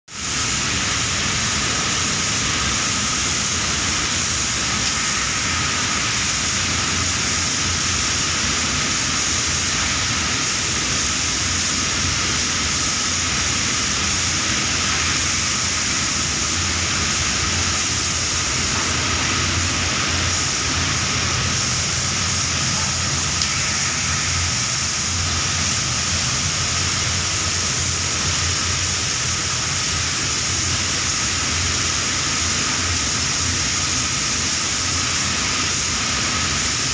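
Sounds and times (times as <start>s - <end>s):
booth air and water running: 0.1s - 36.9s
spray gun hissing: 0.1s - 36.9s.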